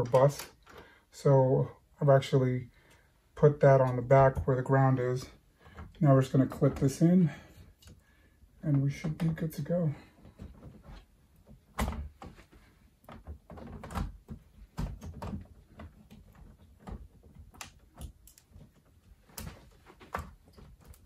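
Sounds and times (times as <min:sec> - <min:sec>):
plastic and metal clicks and knocks: 0:13.0 - 0:21.0.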